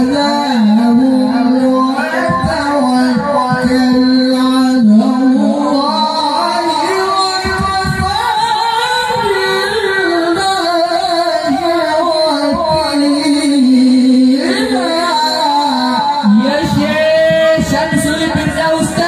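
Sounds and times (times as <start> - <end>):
man reciting melodically over microphone: 0.0 - 19.0.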